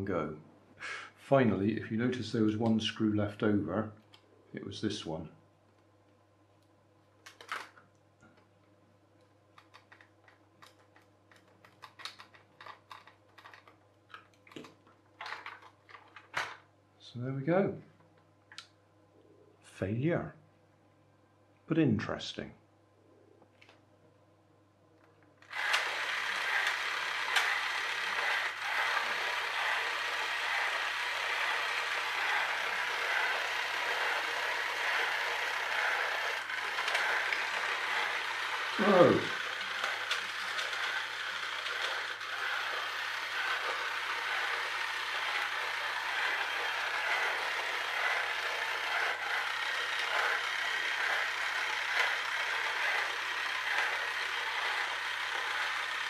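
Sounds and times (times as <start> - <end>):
toy train motor whirring: 9.6 - 15.7, 16.3 - 16.6, 25.4 - 56.0.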